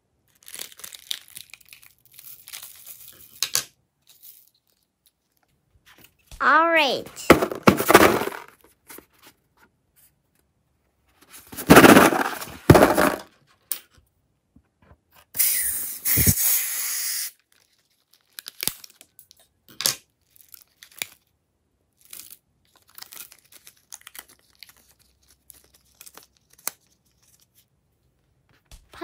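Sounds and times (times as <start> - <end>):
balloon rubbing and tearing: 15.4 - 17.3.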